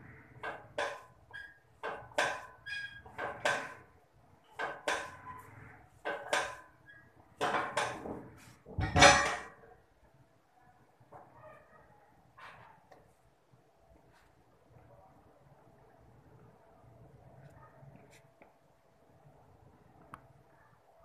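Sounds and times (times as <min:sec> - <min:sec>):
bar clattering onto rack: 0:08.7 - 0:09.6
weight plates clinking: 0:08.7 - 0:09.6.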